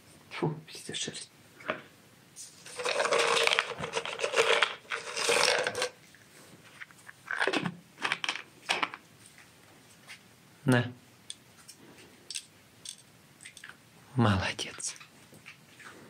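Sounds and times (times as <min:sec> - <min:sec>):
crinkling crushing handling noise: 0:02.5 - 0:10.2.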